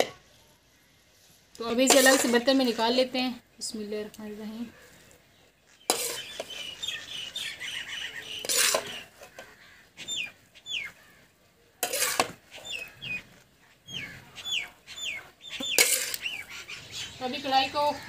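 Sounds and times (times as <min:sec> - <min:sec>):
birds chirping: 0:00.3 - 0:18.0
metal skimmer scraping metal pan: 0:01.7 - 0:02.8, 0:05.9 - 0:06.5, 0:08.4 - 0:09.4, 0:11.8 - 0:12.4, 0:15.6 - 0:16.2.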